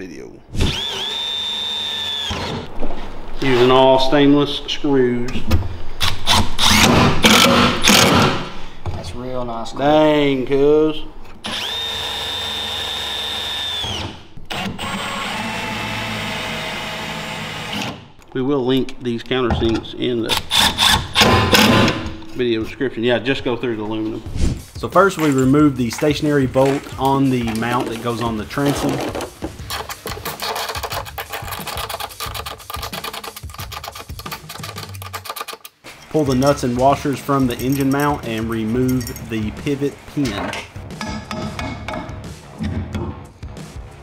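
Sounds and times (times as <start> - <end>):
cordless drill whining: 0.6 - 2.7, 11.4 - 17.9
drill click: 0.7 - 2.7
ratchet clicking rapidly: 29.6 - 36.5.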